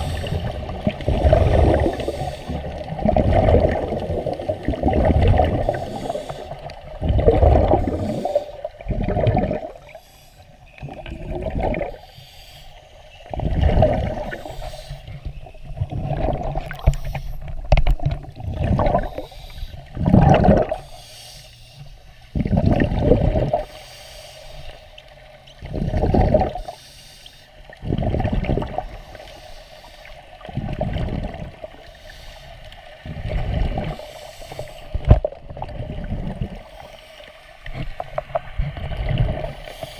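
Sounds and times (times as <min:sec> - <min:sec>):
underwater exhaust bubbles bursting: 0:00.0 - 0:10.0, 0:10.7 - 0:12.1, 0:13.2 - 0:21.0, 0:22.2 - 0:23.7, 0:25.1 - 0:26.8, 0:27.6 - 0:29.3, 0:30.4 - 0:31.9, 0:32.9 - 0:36.8, 0:37.6 - 0:39.9.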